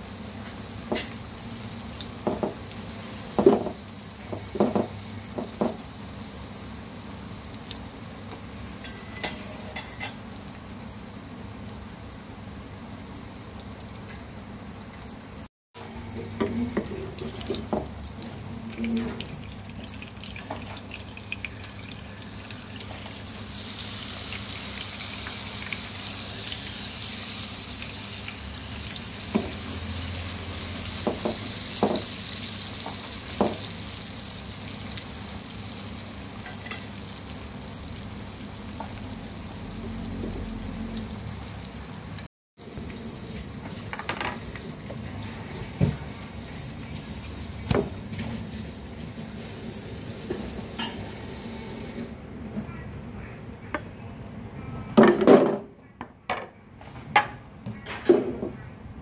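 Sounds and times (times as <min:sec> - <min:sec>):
omelette sizzling in oil: 0:17.2 - 0:39.8.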